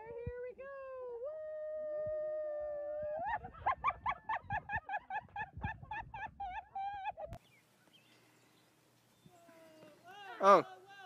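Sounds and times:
person crying out and laughing: 0:06.3 - 0:07.4.

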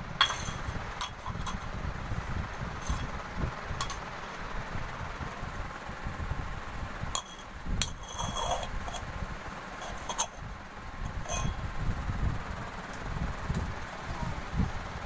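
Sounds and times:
low steady rumble: 0:00.0 - 0:15.0
metal tumbler clinking on stone floor: 0:00.2 - 0:01.7, 0:02.8 - 0:03.1, 0:03.8 - 0:04.1, 0:07.2 - 0:09.0, 0:09.8 - 0:10.4, 0:11.1 - 0:11.6.

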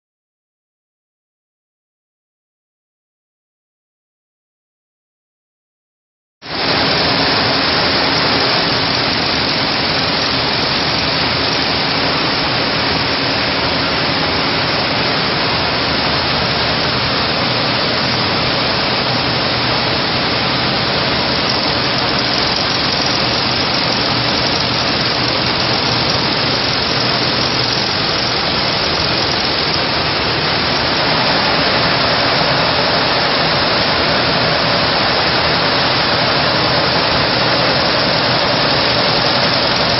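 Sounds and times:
sewing machine running: 0:06.5 - 0:14.0, 0:19.2 - 0:39.9.

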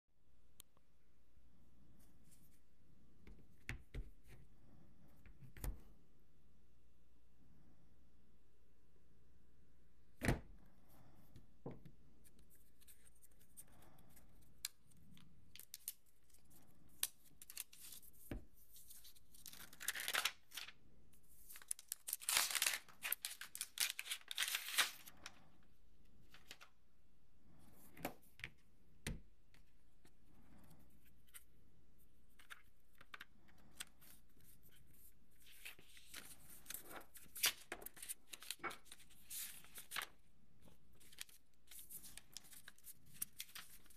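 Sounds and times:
paper rustling: 0:15.6 - 0:25.4, 0:26.2 - 0:26.7, 0:32.3 - 0:43.9
paper tearing and crinkling: 0:21.6 - 0:25.1.

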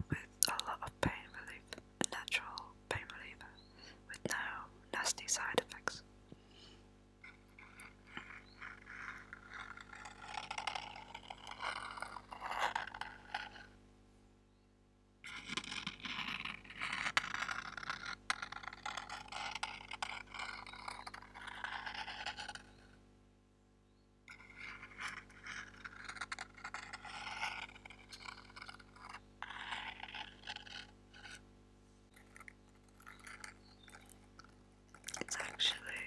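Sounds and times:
fingers scratching cardboard box: 0:07.3 - 0:13.7, 0:15.3 - 0:22.8, 0:24.3 - 0:31.4.

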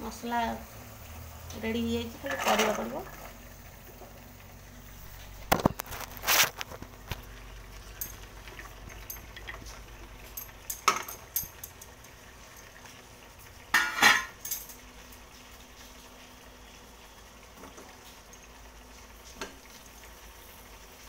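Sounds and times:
metal utensils clinking and clattering: 0:02.2 - 0:03.1, 0:07.8 - 0:12.8, 0:13.7 - 0:14.9.

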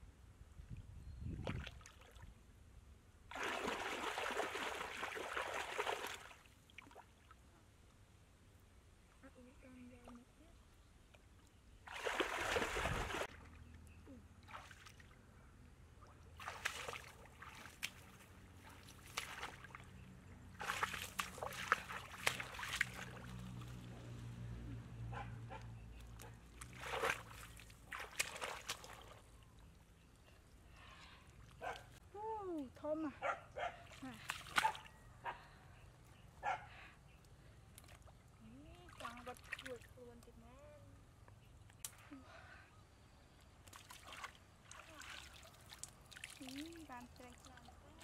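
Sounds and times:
muddy water splashing: 0:03.3 - 0:07.4, 0:11.8 - 0:13.8, 0:14.4 - 0:15.2, 0:16.0 - 0:32.7, 0:33.7 - 0:35.0, 0:37.6 - 0:40.5, 0:43.6 - 0:48.0.

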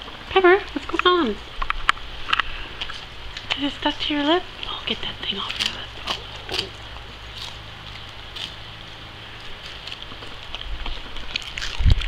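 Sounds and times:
dog crunching ice cream cone: 0:00.0 - 0:12.0
low steady hum: 0:00.0 - 0:12.0.

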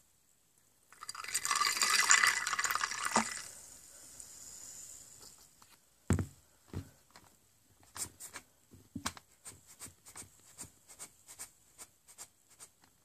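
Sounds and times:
soda pouring and fizzing in glass: 0:00.9 - 0:05.2.

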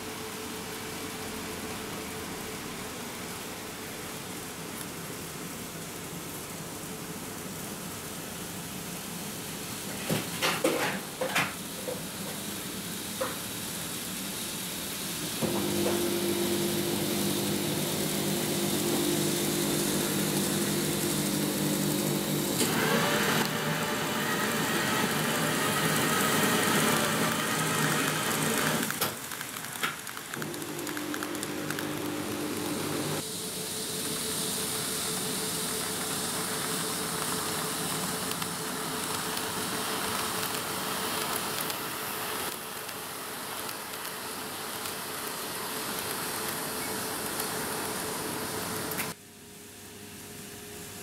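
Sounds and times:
electric motor hum: 0:15.4 - 0:28.9, 0:30.4 - 0:33.2.

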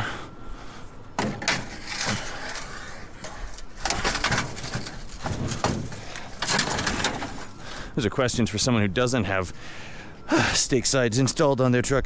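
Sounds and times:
scrap metal clattering and scraping: 0:01.2 - 0:08.0.

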